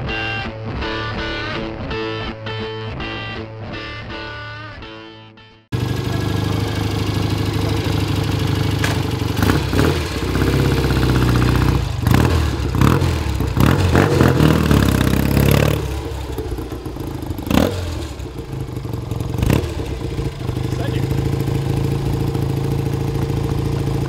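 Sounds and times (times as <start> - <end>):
motorcycle engine pulling away: 5.8 - 24.0.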